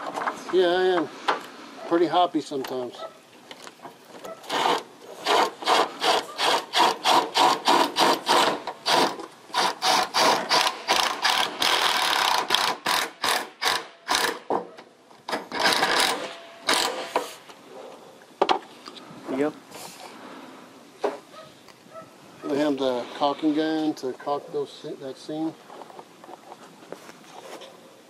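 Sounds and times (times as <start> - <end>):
cordless drill pulsing: 4.5 - 14.4.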